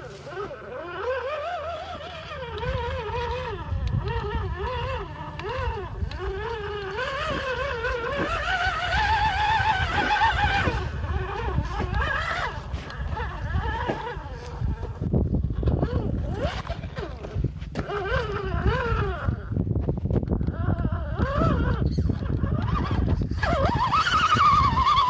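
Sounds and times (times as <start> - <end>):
tyres churning through mud: 0.0 - 15.0
rc car motor whining: 0.0 - 25.0.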